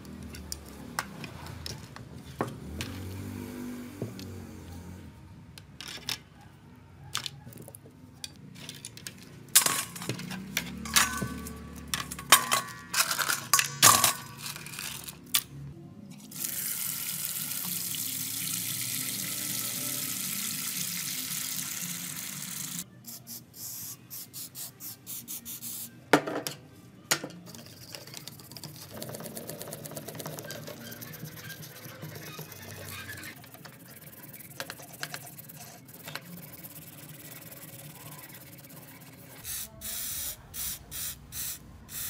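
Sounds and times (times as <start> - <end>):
brush scrubbing plastic parts: 27.5 - 39.4
toothbrush scrubbing circuit board: 28.1 - 42.0.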